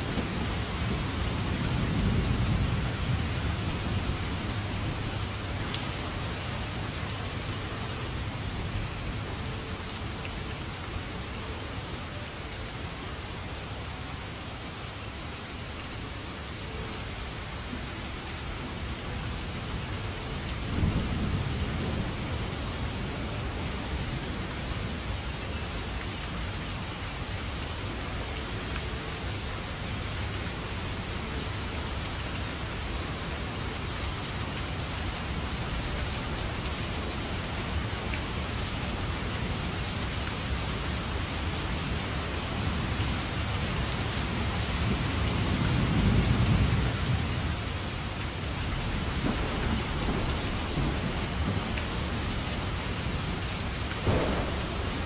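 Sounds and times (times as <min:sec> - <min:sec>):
heavy rain: 0:00.0 - 0:55.0
thunder rumble: 0:48.7 - 0:55.0.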